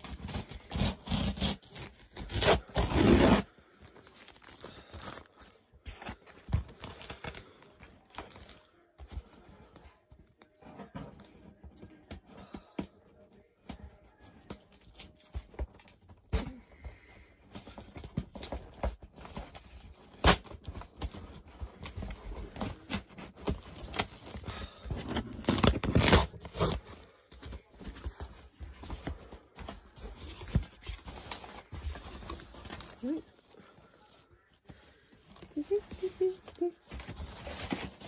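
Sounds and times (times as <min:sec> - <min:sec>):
cardboard tearing: 0:00.0 - 0:03.6, 0:21.8 - 0:27.0.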